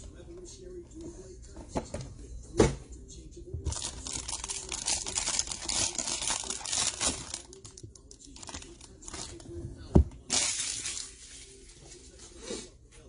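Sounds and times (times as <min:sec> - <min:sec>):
foil wrapper crinkling and tearing: 0:03.7 - 0:09.4.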